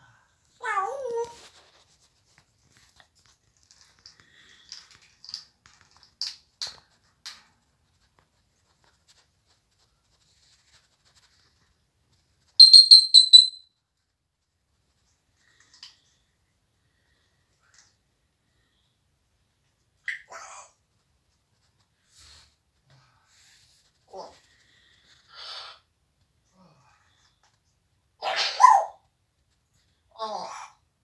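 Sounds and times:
parrot calling: 12.6 - 13.6, 28.2 - 29.0
parrot clicks and chirps: 12.6 - 13.6
parrot high whistled notes: 12.6 - 13.6.

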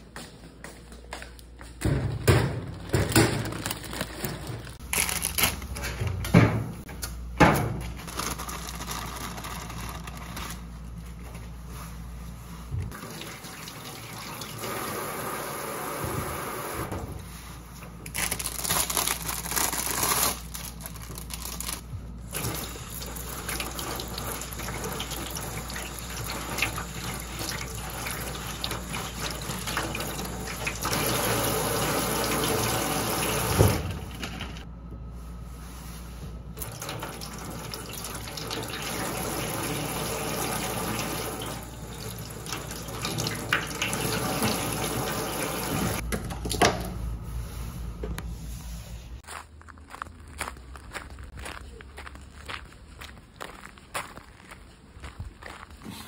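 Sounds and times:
tap water running into sink: 22.4 - 34.3, 36.6 - 46.6.

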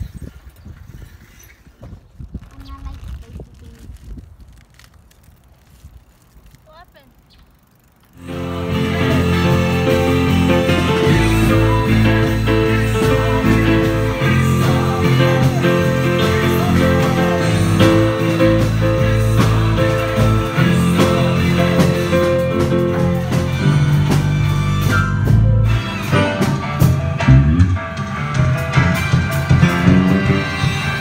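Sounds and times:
electric bass: 8.2 - 31.0
keyboard chords: 8.2 - 31.0
live band playing: 8.2 - 31.0
drum kit and cymbal hits: 8.3 - 31.0.

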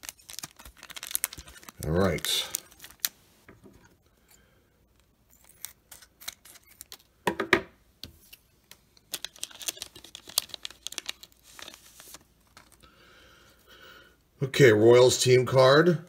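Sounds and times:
foil pack tearing open: 0.0 - 3.1, 9.1 - 12.8
foil wrapper crinkling: 0.0 - 3.2, 9.1 - 12.9.

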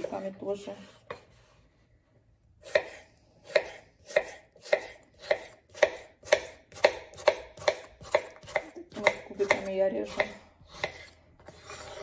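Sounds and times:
knife chopping on wooden board: 2.6 - 11.7.

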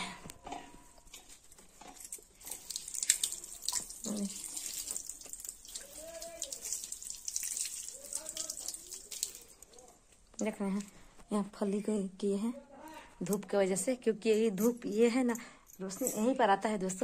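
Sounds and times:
tap water splashing into steel bowl: 2.5 - 9.5.

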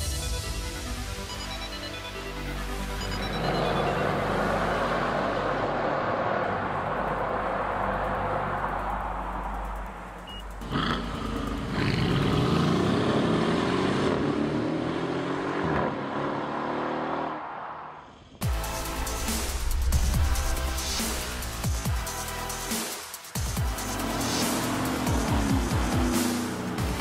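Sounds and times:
background music: 0.0 - 15.6, 18.4 - 27.0
revving engine-like glides: 3.0 - 21.6, 23.5 - 27.0.

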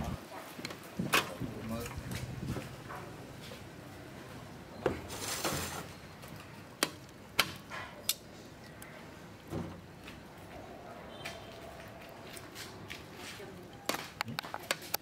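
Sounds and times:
metal tongs clicking against pot: 8.0 - 8.3.

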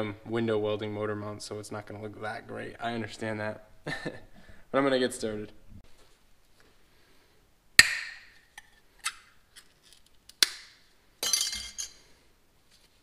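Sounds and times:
metal cap clattering clink: 11.2 - 12.0.

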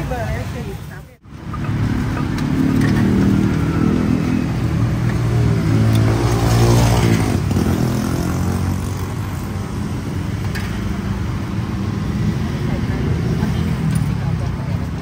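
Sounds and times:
vehicle engine passing by: 1.5 - 9.4.

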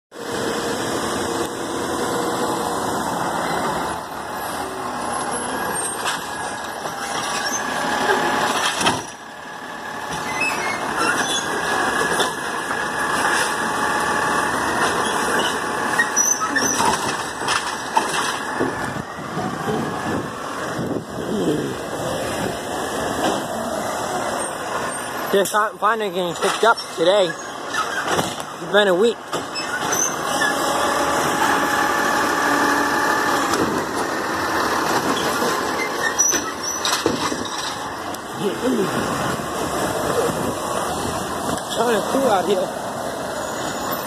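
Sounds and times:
garbage truck engine running: 0.2 - 44.0
knocks and clatter: 16.6 - 19.9, 34.8 - 37.9
hydraulic arm lifting: 29.2 - 41.9.

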